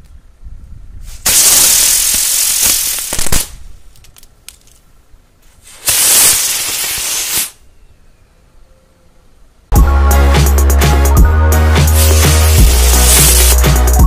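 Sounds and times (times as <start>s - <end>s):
firecracker tubes hissing: 1.0s - 3.5s, 5.6s - 7.6s, 11.8s - 14.0s.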